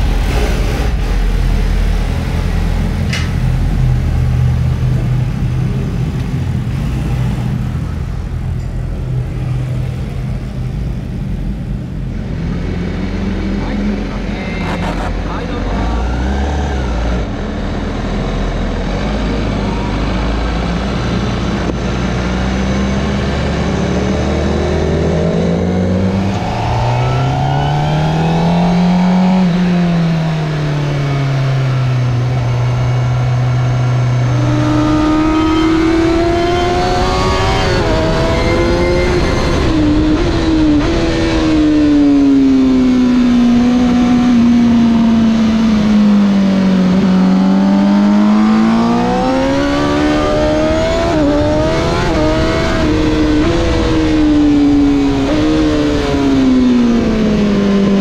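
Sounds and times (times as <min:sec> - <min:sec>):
motorcycle engine accelerating: 0:00.0 - 0:58.0
rushing wind: 0:00.0 - 0:58.0.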